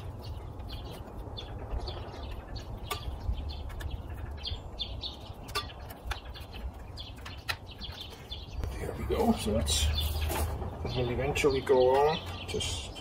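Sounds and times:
wind rumble on microphone: 0.0 - 9.1
small birds chirping: 0.0 - 13.0.

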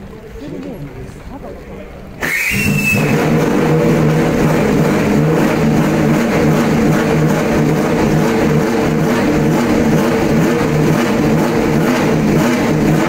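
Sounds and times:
brief high whine: 2.2 - 3.6
racing engine running loudly: 2.2 - 13.0.

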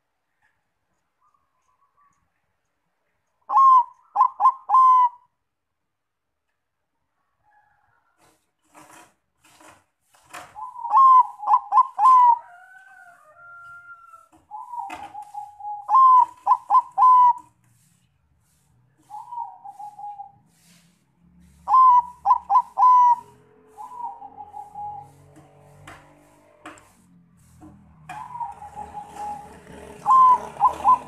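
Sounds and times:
dove cooing: 3.5 - 5.3, 10.6 - 12.6, 13.5 - 17.6, 19.0 - 20.7, 21.4 - 25.6, 28.0 - 31.0.

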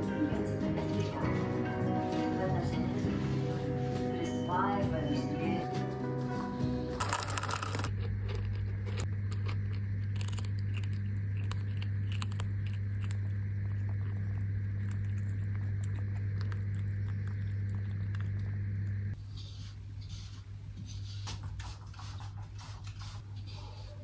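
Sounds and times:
low electrical hum: 0.0 - 24.0
small clicks and crackles: 7.0 - 19.2.

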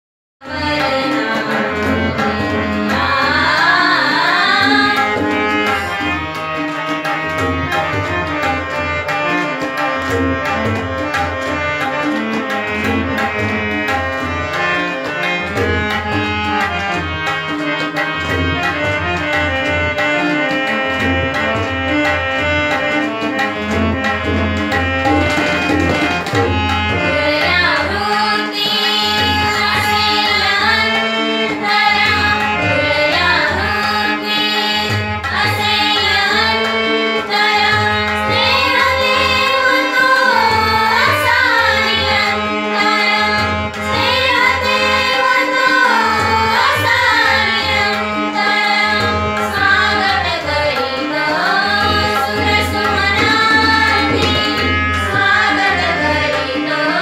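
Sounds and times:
young women singing: 0.4 - 6.0, 27.0 - 57.0
harmonium drone melody: 0.4 - 57.0
tabla rhythm: 0.4 - 57.0.

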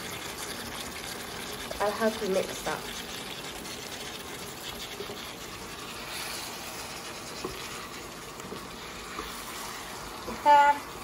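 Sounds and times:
curry sizzling in a pan: 0.0 - 11.0
wooden spoon stirring: 2.5 - 10.9.

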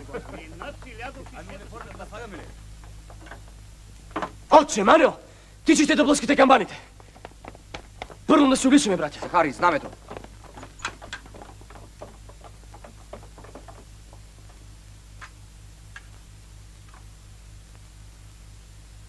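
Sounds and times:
footsteps on dirt: 0.0 - 4.4, 6.1 - 14.8.

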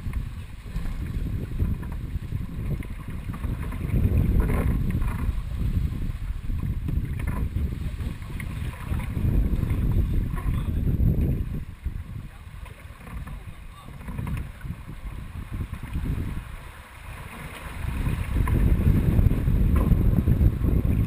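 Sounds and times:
water rushing along hull: 0.0 - 21.0
wind buffeting microphone: 0.0 - 21.0.

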